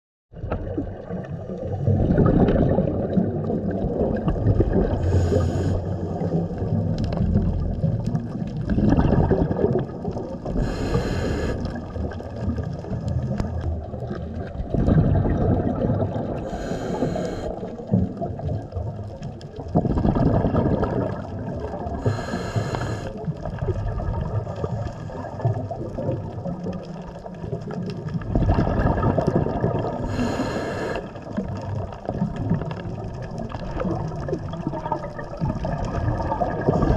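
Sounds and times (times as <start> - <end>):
underwater rumble and swish: 0.3 - 36.9
short breathing hiss: 5.1 - 5.8, 10.6 - 11.6, 16.5 - 17.6, 22.0 - 23.1, 30.1 - 31.0.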